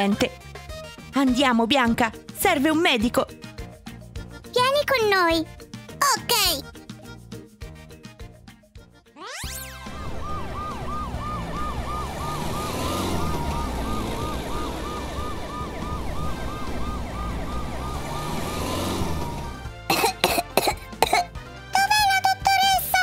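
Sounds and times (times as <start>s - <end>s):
siren yelping: 9.2s - 19.8s.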